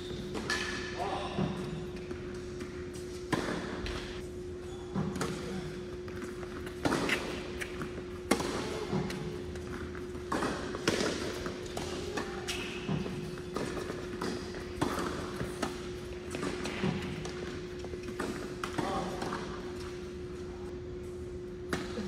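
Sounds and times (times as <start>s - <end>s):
tennis ball bouncing: 3.2s - 4.0s, 6.1s - 19.9s.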